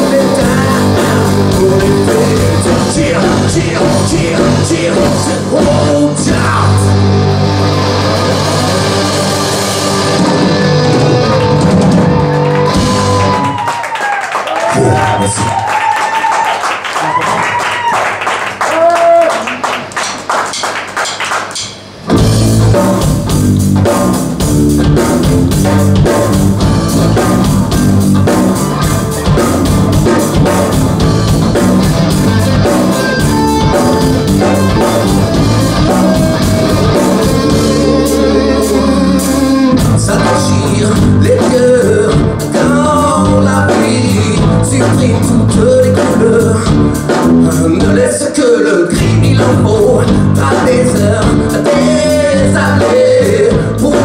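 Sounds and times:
man singing: 0:00.0 - 0:07.0, 0:33.0 - 0:54.0
bass guitar: 0:00.0 - 0:13.7, 0:22.0 - 0:54.0
electric guitars: 0:00.0 - 0:13.7, 0:22.1 - 0:48.2
drum kit: 0:00.0 - 0:15.1, 0:19.8 - 0:54.0.

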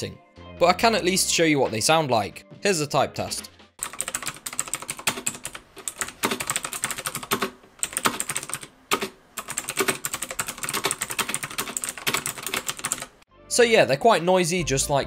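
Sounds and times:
fast typing on clicky keyboard: 0:03.8 - 0:13.1.

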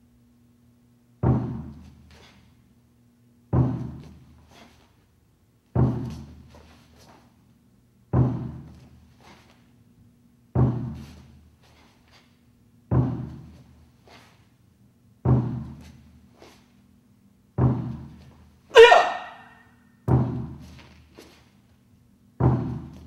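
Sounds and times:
large drum deep thuds: 0:01.2 - 0:01.8, 0:03.5 - 0:04.2, 0:05.7 - 0:06.5, 0:15.2 - 0:15.8, 0:17.6 - 0:18.2, 0:20.1 - 0:20.6.

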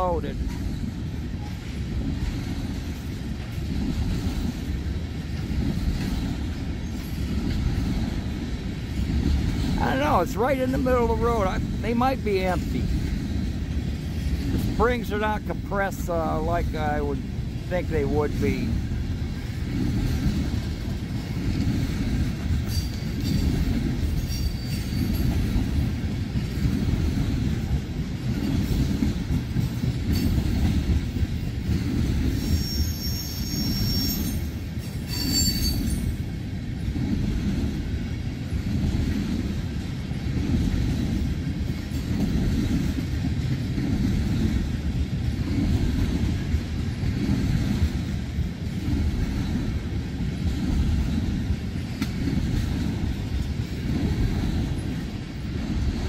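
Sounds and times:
train wheels rumbling on rail: 0:00.0 - 0:56.0
high wheel squeals: 0:32.4 - 0:34.5, 0:35.1 - 0:36.1.

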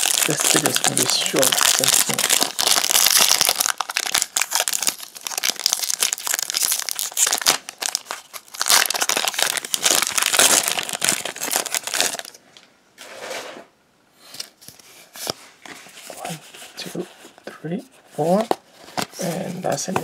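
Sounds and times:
foil wrapper crinkling and tearing: 0:00.0 - 0:12.4.

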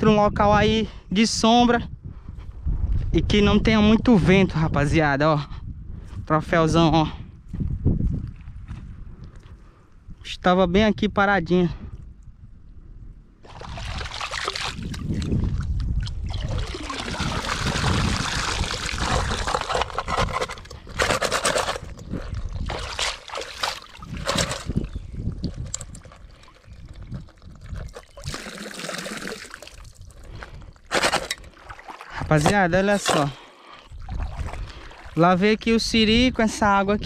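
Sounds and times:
water splashing: 0:13.4 - 0:15.4, 0:16.0 - 0:20.0, 0:22.6 - 0:24.7, 0:25.6 - 0:30.0, 0:31.5 - 0:33.3
water sloshing and pouring: 0:13.4 - 0:35.2.

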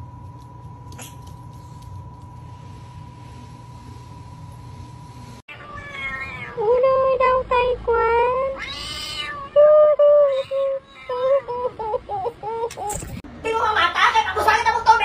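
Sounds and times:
cat meowing: 0:05.5 - 0:06.6, 0:08.5 - 0:09.6.

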